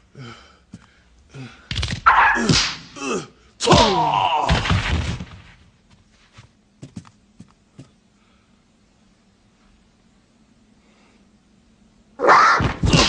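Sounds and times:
man crying out: 0:02.1 - 0:04.6.

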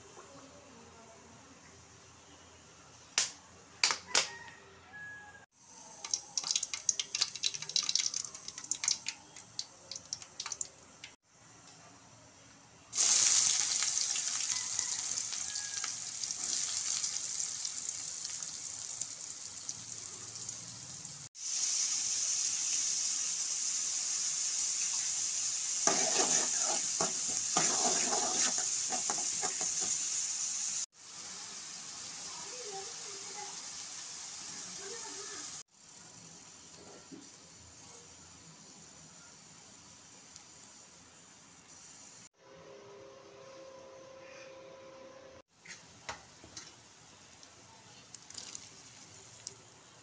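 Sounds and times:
onions sizzling in oil: 0:05.6 - 0:11.7, 0:12.9 - 0:42.3
hot oil crackling and popping: 0:05.9 - 0:11.8, 0:12.9 - 0:37.5, 0:46.0 - 0:50.0
spatula scraping pan: 0:25.8 - 0:30.0.

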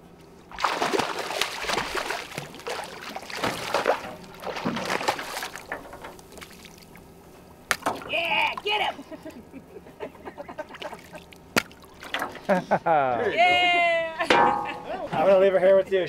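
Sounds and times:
fish splashing at water surface: 0:00.5 - 0:07.0.

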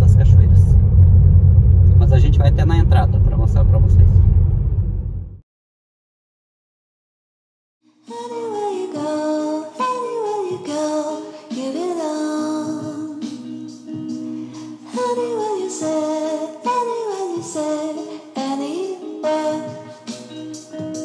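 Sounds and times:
background music: 0:07.9 - 0:21.0.

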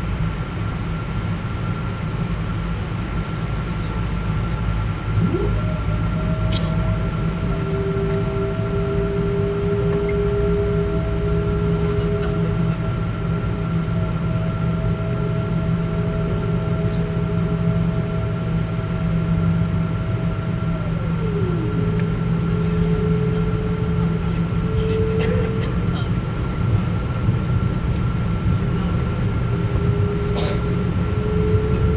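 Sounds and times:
jet engine drone: 0:00.0 - 0:31.9
whining tones: 0:04.6 - 0:31.9.

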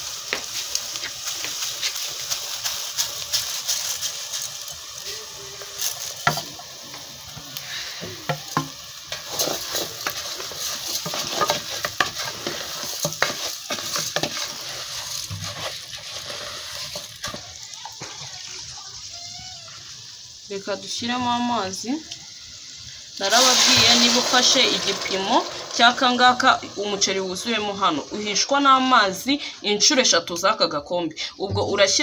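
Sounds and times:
rice sizzling in hot oil: 0:00.0 - 0:32.0
wooden spatula scraping a pot: 0:07.6 - 0:17.6.

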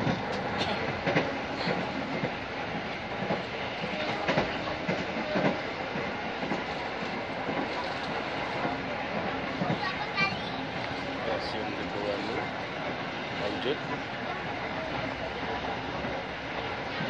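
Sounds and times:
clacks over rail joints: 0:00.0 - 0:14.1
train wheels rumbling on rails: 0:00.0 - 0:17.0.

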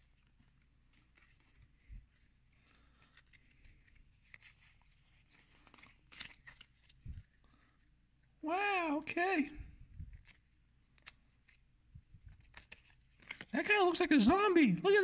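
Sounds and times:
cards sliding against each other: 0:00.0 - 0:07.8.

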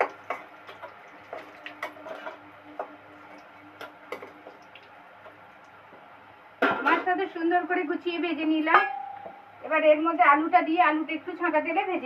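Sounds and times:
metal spatula tapping iron pan: 0:08.7 - 0:09.4.

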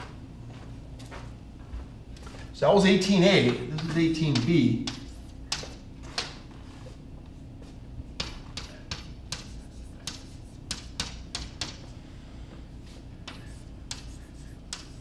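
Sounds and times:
chalk tapping and scraping on blackboard: 0:03.5 - 0:06.4, 0:08.2 - 0:12.0, 0:12.9 - 0:15.0.

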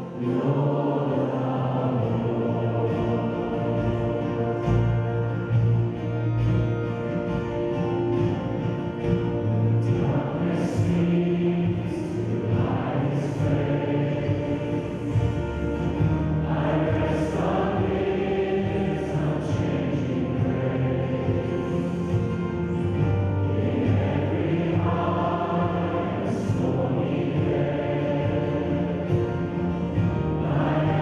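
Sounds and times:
choir singing: 0:00.0 - 0:31.0
sustained instrumental accompaniment: 0:00.0 - 0:31.0.

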